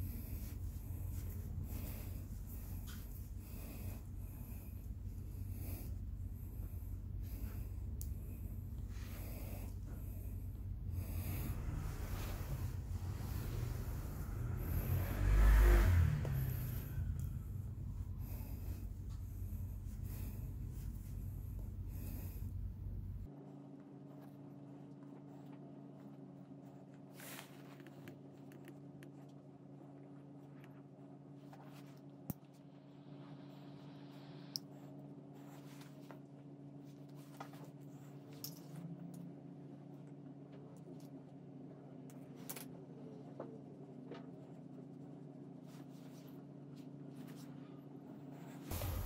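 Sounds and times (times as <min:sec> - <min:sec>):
steady low hum: 0:00.0 - 0:49.0
sudden rushing noise: 0:48.7 - 0:49.0.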